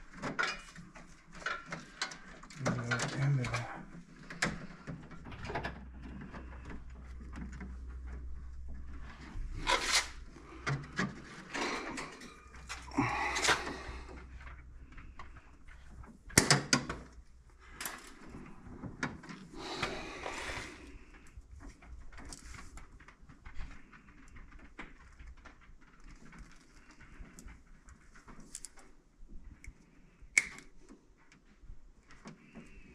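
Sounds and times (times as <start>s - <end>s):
hands working wires: 0.0s - 32.9s.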